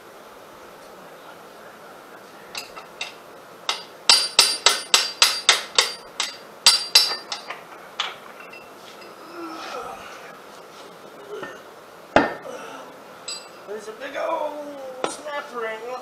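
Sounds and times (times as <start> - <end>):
hammer striking steel axle: 2.6 - 8.7, 12.2 - 12.4.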